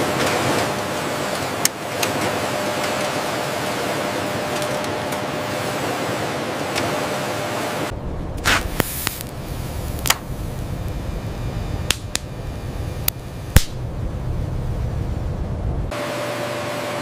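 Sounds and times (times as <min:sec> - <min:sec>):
low rumble: 0:07.9 - 0:15.9.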